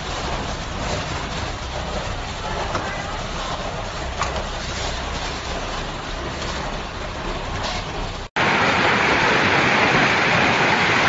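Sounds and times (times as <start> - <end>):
hailstones pelting: 0.0 - 11.0
sharp hail hits: 8.4 - 11.0.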